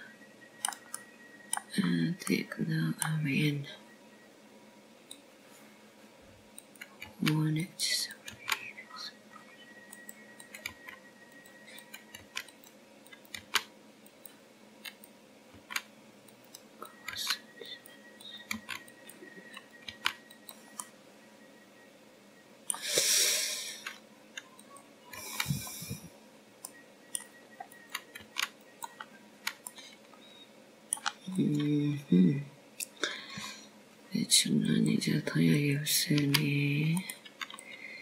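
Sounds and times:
mouse and keyboard clicks: 0.6 - 1.7, 8.2 - 8.7, 9.9 - 20.9, 26.6 - 29.8, 30.9 - 31.7.

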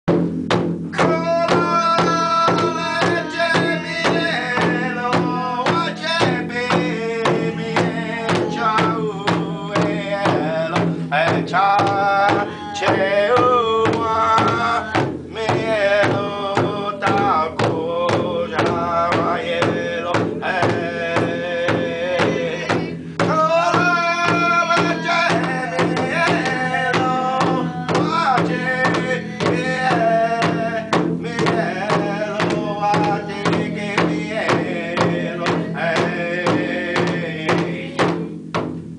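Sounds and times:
drum beaten with padded sticks: 0.0 - 38.9
person singing long wavering notes: 21.7 - 30.4.

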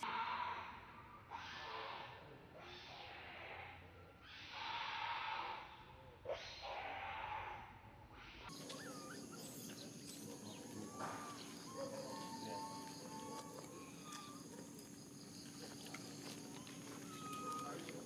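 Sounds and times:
squeaky chirps and whistled calls: 8.5 - 18.0.

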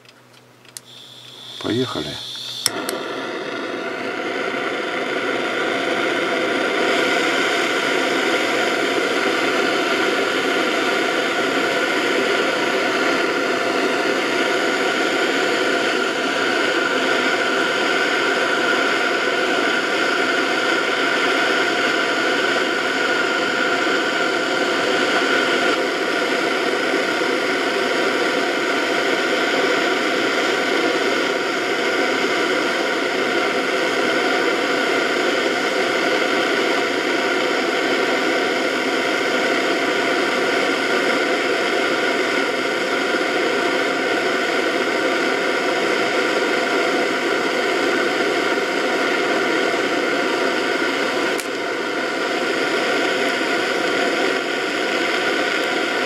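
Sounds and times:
gas torch hissing: 0.7 - 56.0.

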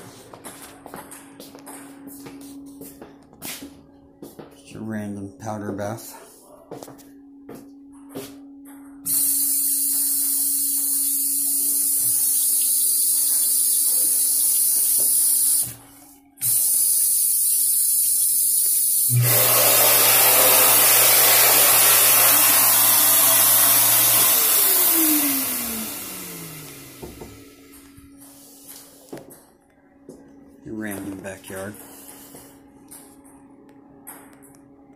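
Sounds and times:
sensor faucet spraying water: 9.1 - 15.7
hand dryer blowing: 16.4 - 27.6.

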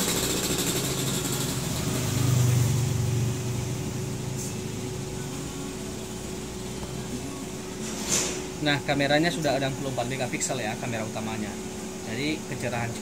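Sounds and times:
vehicle engine running at low revs: 0.0 - 7.2.

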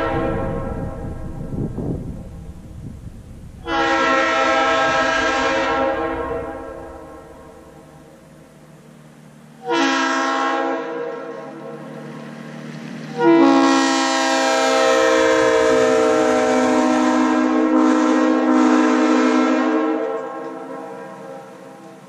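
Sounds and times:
locomotive air horn blasts: 0.0 - 1.4, 3.6 - 8.2, 9.6 - 11.9, 13.0 - 21.9.

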